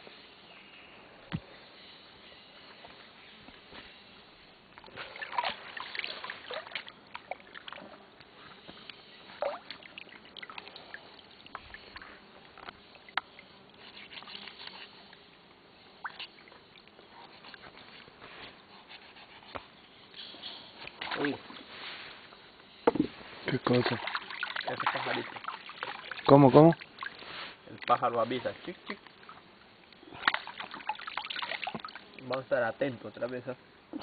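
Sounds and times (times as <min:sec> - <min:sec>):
water sloshing and trickling: 0:04.6 - 0:18.2, 0:20.6 - 0:32.6
small splashes and drips: 0:04.8 - 0:08.3, 0:08.9 - 0:15.3, 0:16.0 - 0:17.0, 0:20.8 - 0:21.6, 0:23.5 - 0:28.2, 0:28.8 - 0:32.5.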